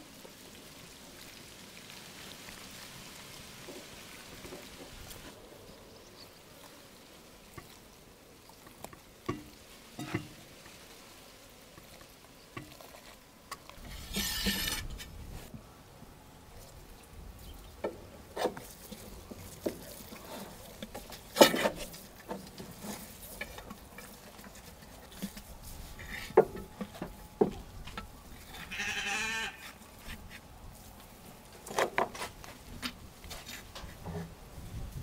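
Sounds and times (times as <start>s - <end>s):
bleat: 28.5s - 29.8s.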